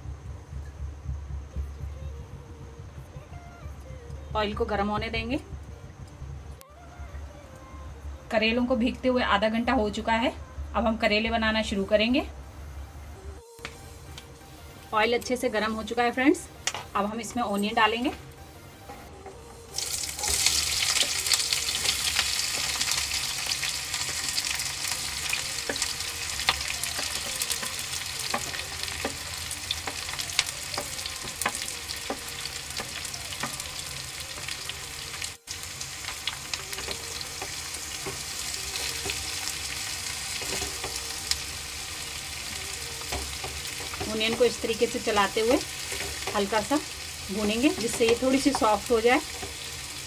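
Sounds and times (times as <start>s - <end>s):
onions sizzling in hot oil: 19.7s - 50.0s.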